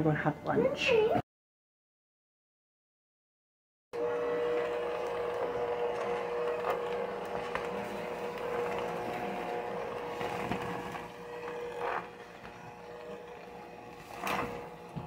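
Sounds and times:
electric hand mixer whining: 4.0 - 15.0.

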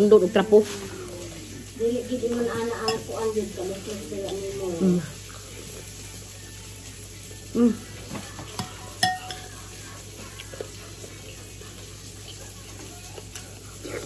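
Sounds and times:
metal spoon clinking on plate: 8.6 - 9.6.

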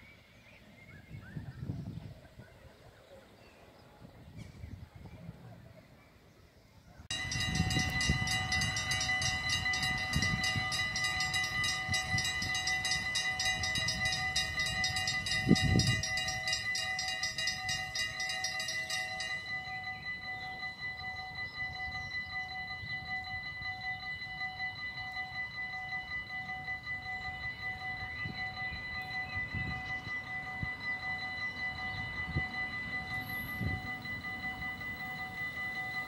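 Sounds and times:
train rumble and knocks: 7.1 - 20.3
fast high ticking: 7.1 - 23.4
train locomotive whine: 7.1 - 36.0.

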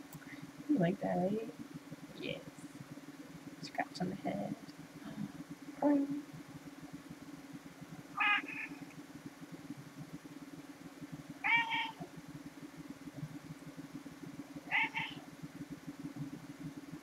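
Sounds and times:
cat meowing: 11.4 - 12.0, 14.7 - 15.2.

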